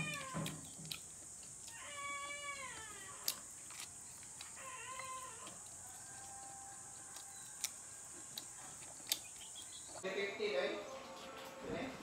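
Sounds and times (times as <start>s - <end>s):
cat meowing: 0.0s - 0.6s, 1.7s - 3.4s.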